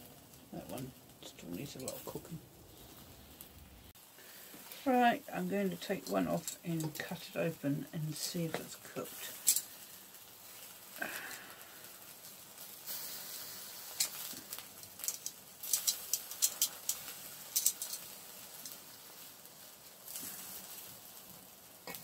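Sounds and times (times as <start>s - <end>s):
faint hiss: 0.0s - 22.0s.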